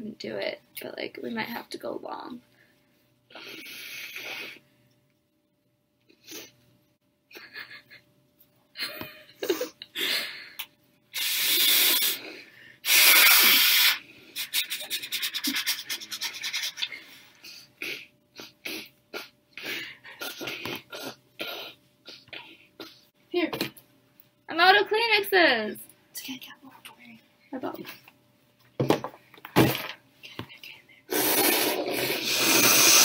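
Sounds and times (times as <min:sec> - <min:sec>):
nose blowing into tissue: 0:03.3 - 0:04.6, 0:11.1 - 0:16.9, 0:31.1 - 0:33.0
sniffs and snorts: 0:03.4 - 0:04.6, 0:11.2 - 0:23.0, 0:31.1 - 0:33.0.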